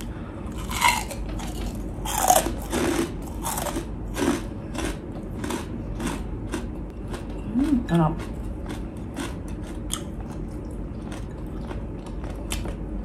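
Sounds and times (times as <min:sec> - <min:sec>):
crunchy chewing: 0:00.5 - 0:07.4, 0:08.2 - 0:12.9.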